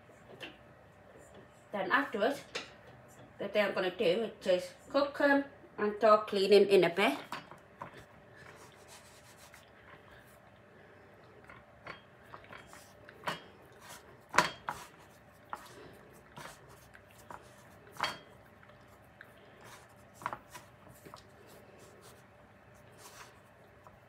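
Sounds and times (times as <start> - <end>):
utensils and dishes clinking: 17.9 - 18.4.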